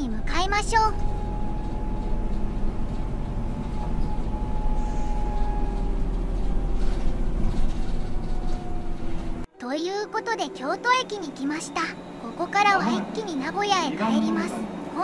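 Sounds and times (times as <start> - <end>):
bus engine rumble: 0.0 - 15.0.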